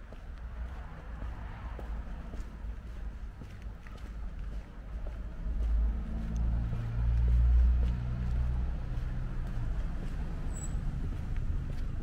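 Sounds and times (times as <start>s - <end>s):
vehicle engine passing by: 5.3s - 12.0s.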